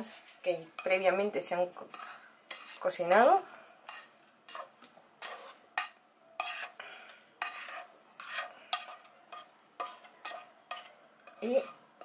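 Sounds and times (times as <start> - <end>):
spatula scraping frying pan: 0.0 - 12.0.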